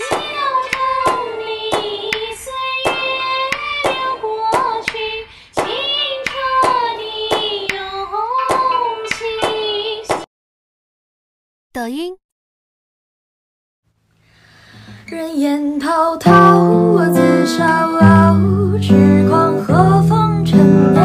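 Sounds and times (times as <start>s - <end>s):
sharp clap-like beat: 0.0s - 7.9s, 8.5s - 10.3s.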